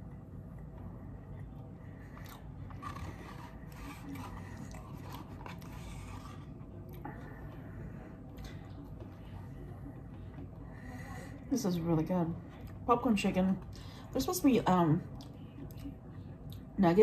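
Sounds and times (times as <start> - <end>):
steady low hum: 0.0 - 17.0
person chewing crunchy food: 2.0 - 7.0.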